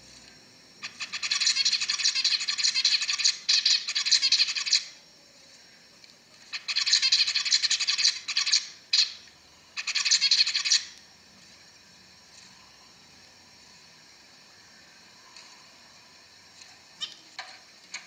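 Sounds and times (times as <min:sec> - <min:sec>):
zebra finch singing: 0:00.8 - 0:05.0, 0:06.5 - 0:11.0.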